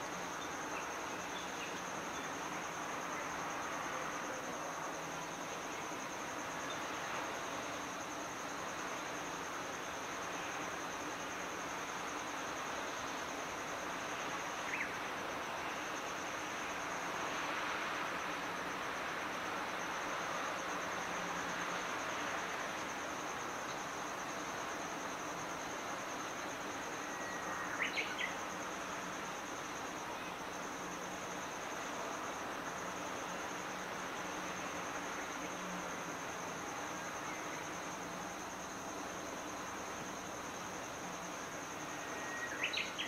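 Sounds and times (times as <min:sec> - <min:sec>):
high-pitched insect trill: 0:00.0 - 0:43.0.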